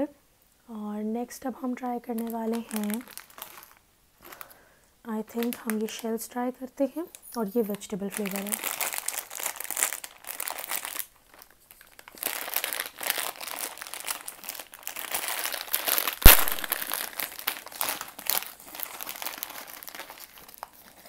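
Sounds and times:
snack packet crinkling and tearing: 2.1 - 4.6, 5.2 - 6.0, 7.8 - 21.0
sharp snap: 16.2 - 16.9.

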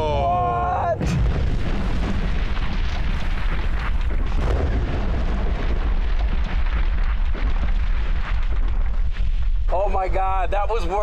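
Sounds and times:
explosion deep rumble: 0.0 - 11.0
crackles: 1.0 - 11.0.

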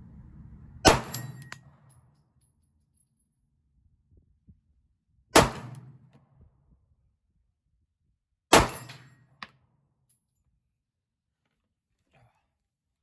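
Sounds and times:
pistol shots: 5.4 - 6.0, 8.5 - 9.0.

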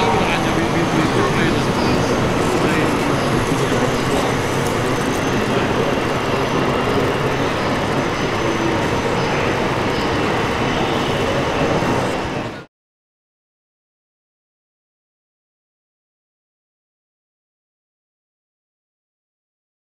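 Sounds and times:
model tractor running: 0.0 - 11.0.

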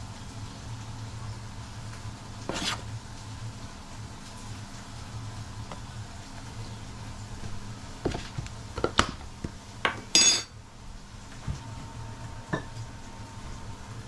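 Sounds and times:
ringing metallic clatter: 10.2 - 10.5.

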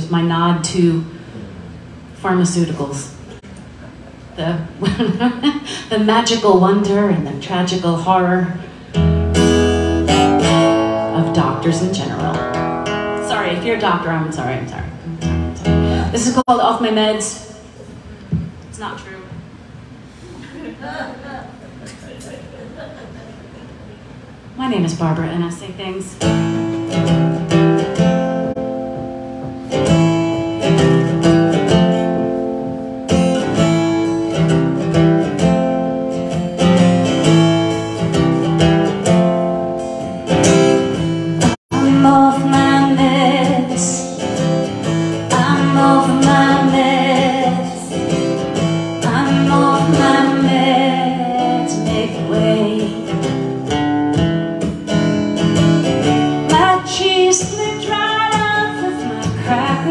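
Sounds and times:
acoustic guitar strumming: 6.2 - 16.4, 26.2 - 59.9
woman singing: 41.7 - 44.3, 45.3 - 48.0, 49.0 - 53.3, 56.5 - 59.9.

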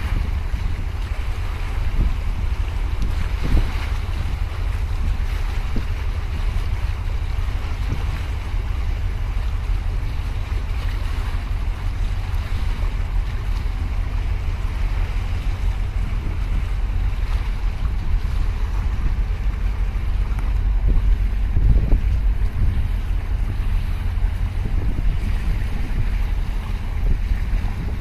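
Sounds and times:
water lapping at quay: 0.0 - 28.0
wind buffeting microphone: 0.0 - 28.0.

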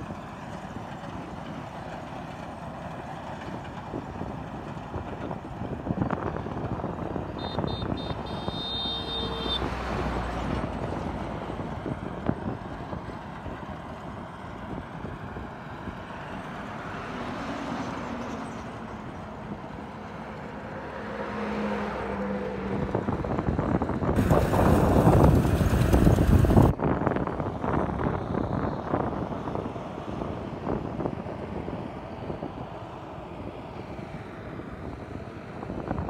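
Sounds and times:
harvester engine running: 24.2 - 26.7
loud rush of noise: 24.2 - 26.7.

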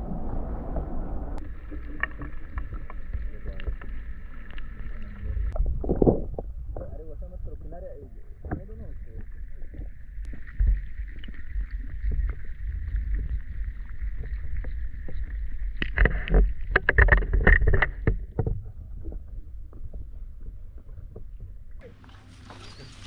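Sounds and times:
underwater rumble and hiss: 0.0 - 23.0
sharp clicks and knocks: 15.8 - 20.0.

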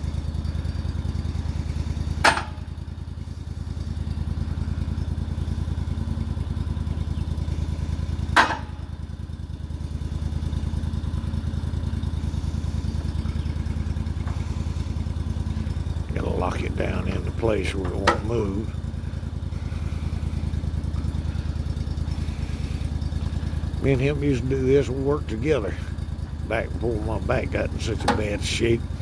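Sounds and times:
sawmill engine running: 0.0 - 29.0
sharp knocks: 8.4 - 8.7.

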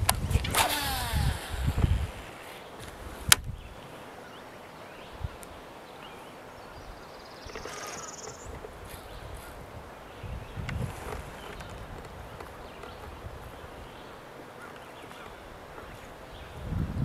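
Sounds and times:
fishing line whirring off reel: 0.0 - 2.7, 7.5 - 8.6
faint reel whir: 0.0 - 4.3, 7.4 - 9.6, 10.6 - 16.3
wind buffeting microphone: 0.0 - 17.0.

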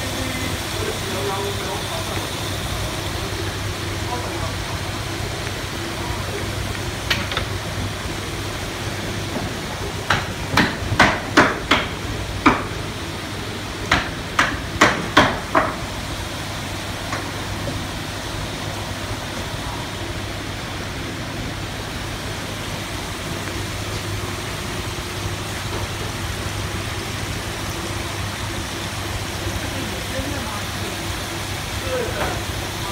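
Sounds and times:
steady hum with water noise: 0.0 - 32.9
sharp knocks: 10.1 - 12.7.

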